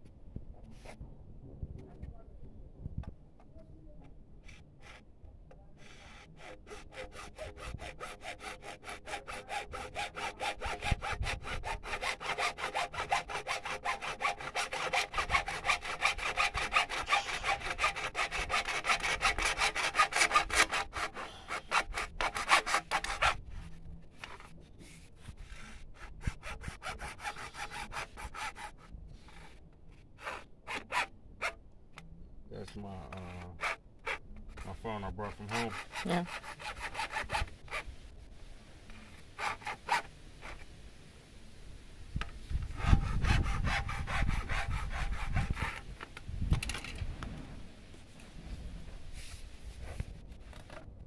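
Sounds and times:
hacksaw cutting plastic pipe: 5.8s - 23.4s, 25.6s - 28.7s, 30.2s - 31.6s, 33.1s - 34.7s, 35.4s - 37.8s, 42.7s - 45.9s.

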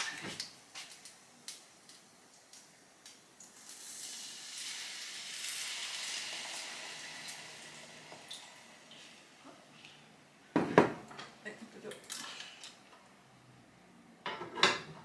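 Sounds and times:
water sizzling in hot pan: 0.0s - 9.4s.

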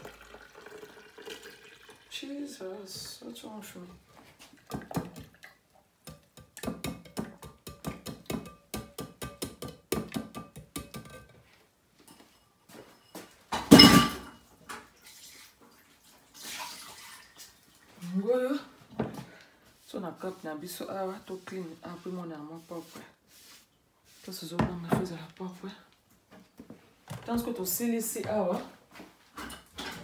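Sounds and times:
utensil tapping a metal sieve: 6.0s - 11.2s.

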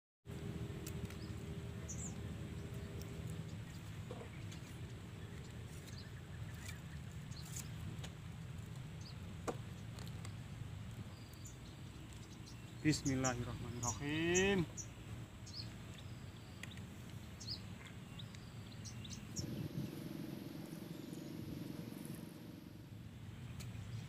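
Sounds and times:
bird chirps: 1.0s - 7.8s, 11.1s - 24.0s
steady low rumble: 19.0s - 24.0s.

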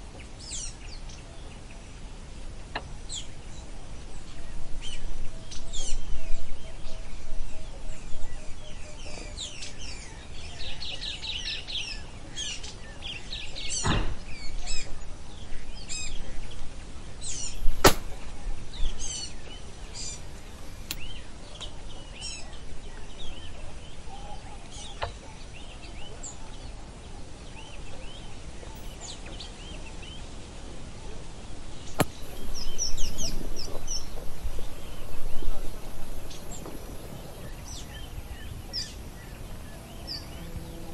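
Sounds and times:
shotgun action clicks: 17.6s - 18.2s
small birds chirping: 31.7s - 40.9s.

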